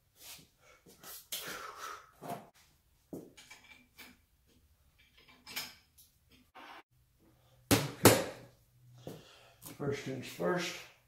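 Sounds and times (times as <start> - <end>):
metal tools clinking and knocking: 3.4 - 4.2, 4.9 - 6.4.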